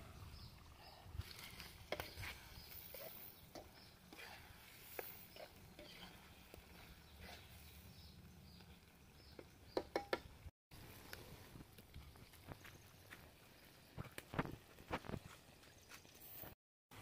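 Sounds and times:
spatula tapping iron pan: 0:09.4 - 0:10.3.

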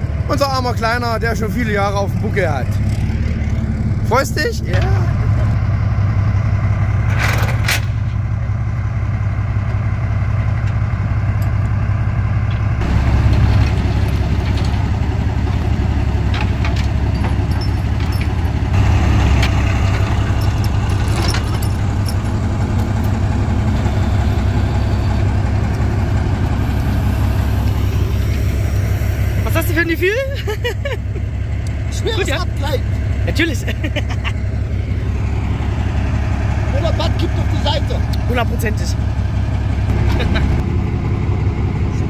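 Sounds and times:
diesel engine running: 0:00.0 - 0:42.0
metal clanks: 0:12.5 - 0:23.2.

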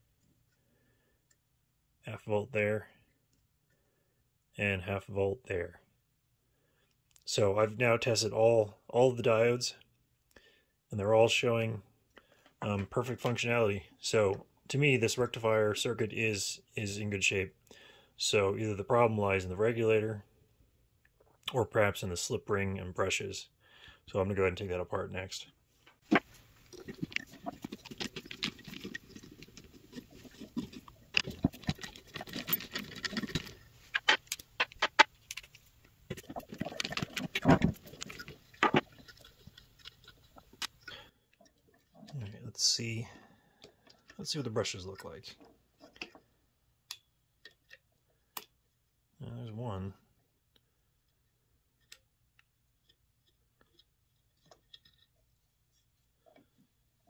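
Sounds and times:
small metal parts clinking: 0:26.8 - 0:40.8.

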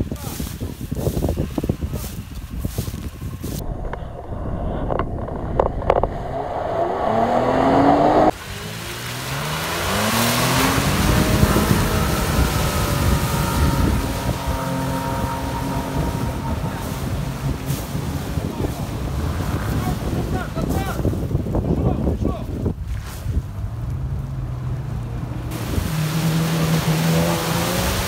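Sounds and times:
vehicle wading through water: 0:01.2 - 0:28.0
wash of noise: 0:03.5 - 0:21.4, 0:24.7 - 0:28.0
suv engine revving: 0:03.6 - 0:20.5, 0:23.5 - 0:28.0.

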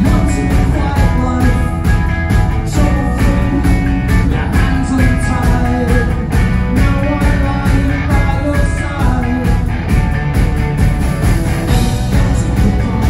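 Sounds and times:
electric guitars: 0:00.0 - 0:13.0
steady drum beat: 0:00.0 - 0:13.0.

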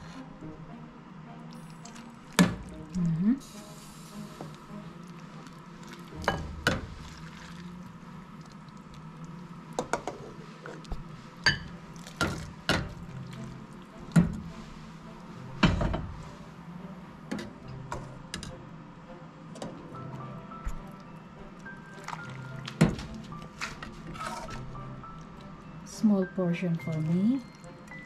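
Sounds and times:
soup pouring and splashing: 0:01.5 - 0:09.7, 0:11.6 - 0:14.6, 0:20.7 - 0:25.5.

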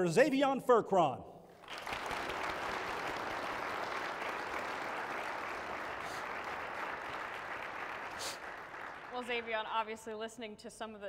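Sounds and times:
audience applauding: 0:01.6 - 0:09.7.

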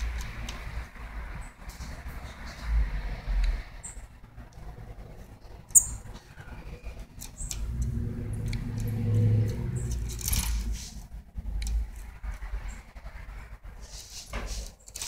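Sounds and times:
low motor hum: 0:02.0 - 0:13.5.

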